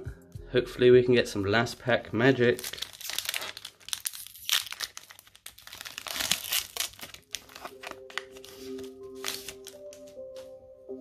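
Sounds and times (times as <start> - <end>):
foil wrapper crinkling and tearing: 2.2 - 10.2.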